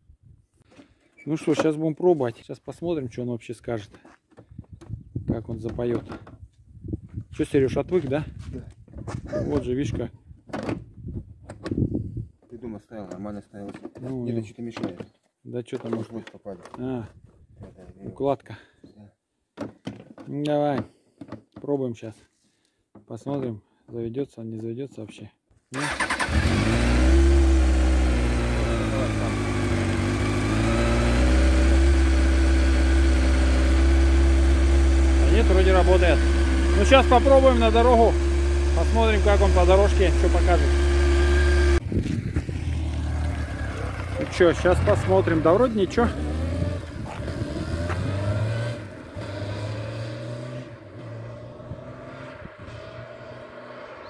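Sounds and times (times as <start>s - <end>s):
motorcycle engine accelerating: 25.8s - 54.0s.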